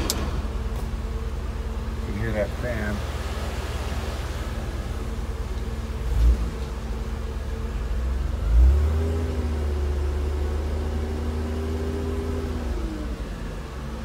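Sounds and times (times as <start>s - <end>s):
thump: 0.0s - 0.8s
electric cooling fans running: 0.0s - 7.6s
car engine idling: 0.0s - 14.0s.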